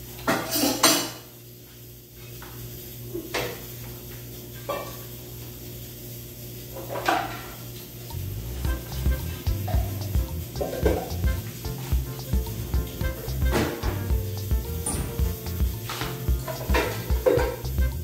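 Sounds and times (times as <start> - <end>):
dishes and pots clinking: 0.2 - 1.3, 8.5 - 18.0
low steady hum: 8.1 - 18.0.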